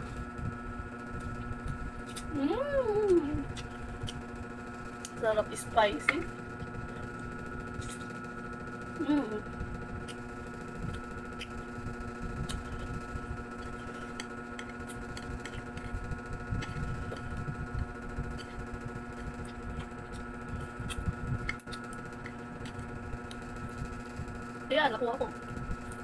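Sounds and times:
electrical hum: 0:00.0 - 0:26.0
chewing noodles: 0:13.6 - 0:23.4.

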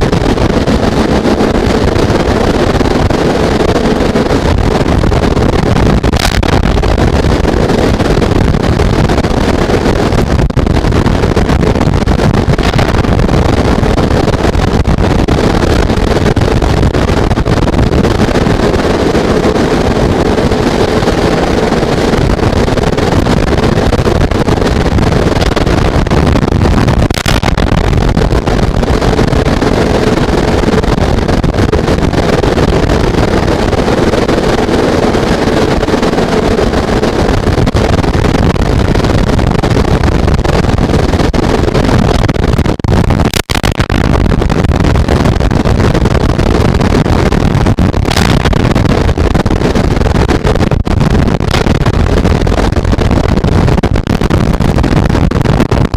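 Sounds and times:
heavy rain and wind on microphone: 0:00.0 - 0:55.9
sharp clicks: 0:27.1 - 0:27.6, 0:43.3 - 0:43.9.

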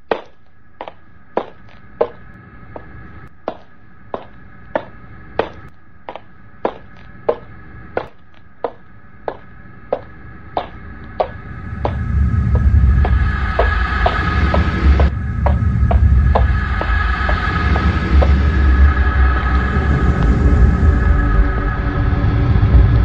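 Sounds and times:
steady high hum: 0:00.0 - 0:23.0
footsteps on hard floor: 0:04.2 - 0:18.4
low rumble: 0:09.3 - 0:23.0.

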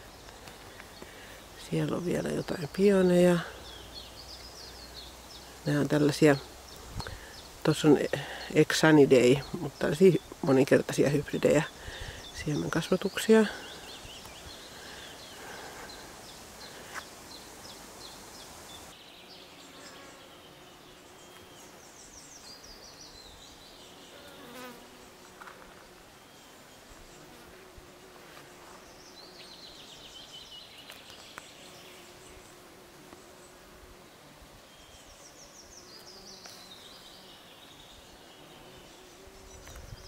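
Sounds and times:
insect buzzing: 0:00.0 - 0:40.0.

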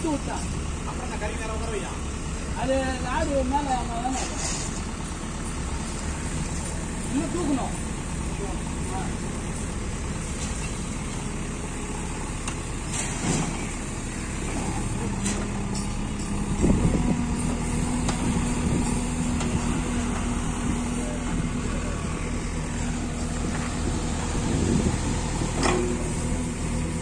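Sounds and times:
diesel engines running: 0:00.0 - 0:27.0
engine revving under load: 0:10.5 - 0:27.0.

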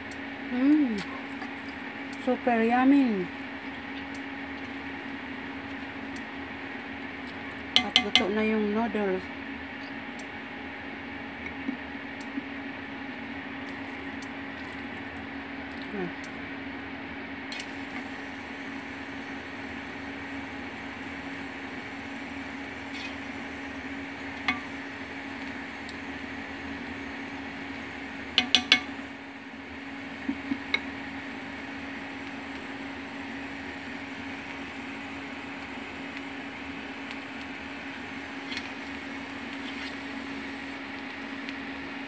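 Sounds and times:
steady low hum: 0:00.0 - 0:42.0
utensil clinking against a pan: 0:07.8 - 0:08.4, 0:28.4 - 0:29.0.

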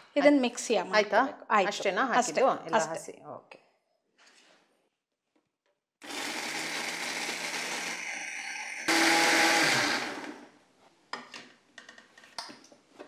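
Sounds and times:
electric mixer grinder running: 0:06.0 - 0:10.5.

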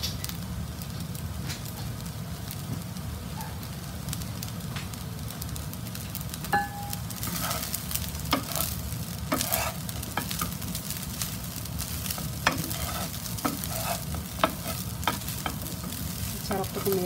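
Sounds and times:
food sizzling: 0:00.0 - 0:17.0
spatula scraping frying pan: 0:07.1 - 0:17.0.

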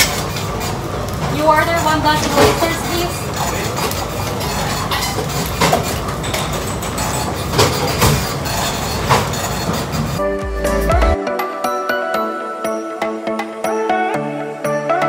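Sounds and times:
extraction hood rushing: 0:00.0 - 0:10.2
pans and utensils clattering: 0:00.0 - 0:10.2
background music: 0:10.2 - 0:15.0.

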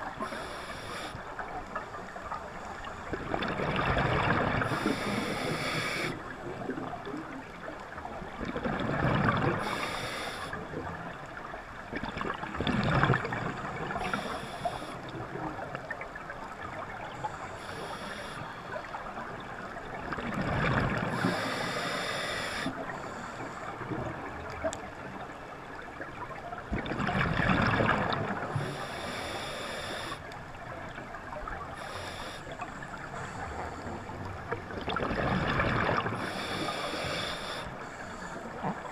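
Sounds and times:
regulator hiss on inhalation: 0:00.2 - 0:01.2, 0:04.7 - 0:06.2, 0:09.6 - 0:10.6, 0:14.0 - 0:15.0, 0:17.6 - 0:18.5, 0:21.1 - 0:22.7, 0:28.6 - 0:30.2, 0:31.8 - 0:32.6, 0:36.2 - 0:37.8
exhaust bubbles gushing: 0:26.7 - 0:28.5.

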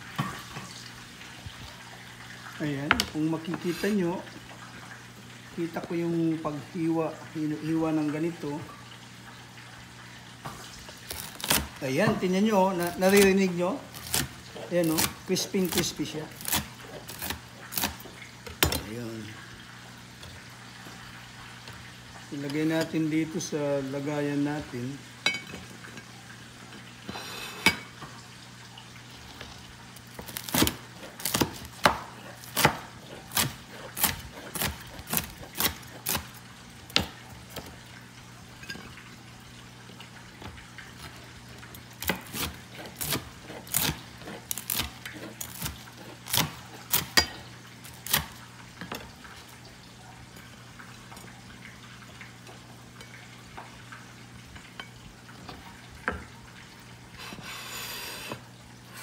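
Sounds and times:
knife chopping on plastic board: 0:30.2 - 0:36.3.

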